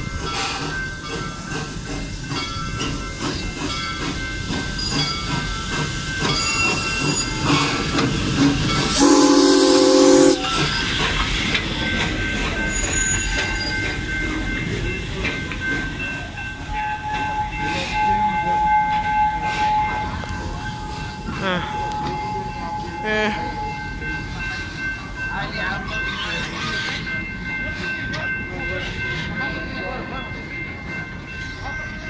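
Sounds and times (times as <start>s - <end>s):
steam locomotive rumbling: 0.0s - 32.0s
chime steam whistle blast: 8.8s - 11.0s.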